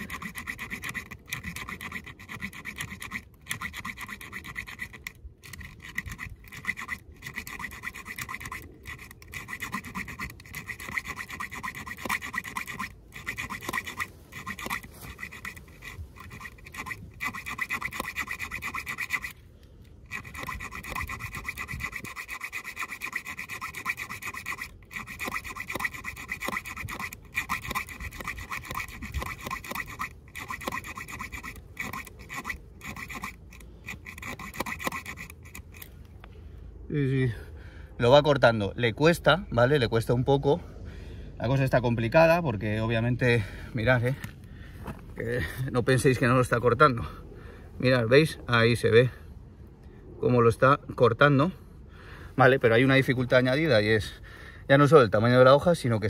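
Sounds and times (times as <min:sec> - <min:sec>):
saw blade rasping through metal: 0:00.0 - 0:19.4, 0:20.0 - 0:35.9.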